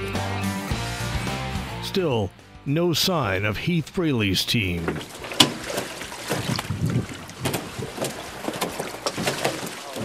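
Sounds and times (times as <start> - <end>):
fish thudding on metal hull: 4.8 - 10.0.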